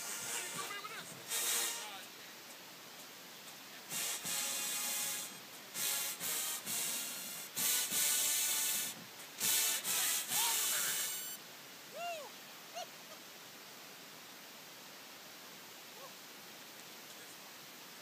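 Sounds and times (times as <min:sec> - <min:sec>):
marching band brass blasts: 0:00.0 - 0:02.2, 0:03.8 - 0:11.4.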